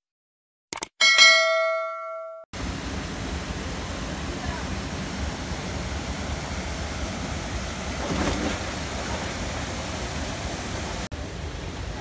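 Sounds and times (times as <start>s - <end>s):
water rushing over rocks: 2.6s - 12.0s.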